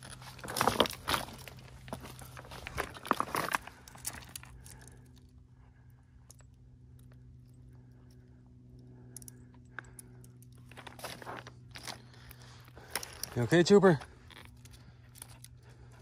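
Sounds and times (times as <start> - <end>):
footsteps on gravel: 0.0 - 4.4, 10.6 - 14.7
low hum: 0.0 - 16.0.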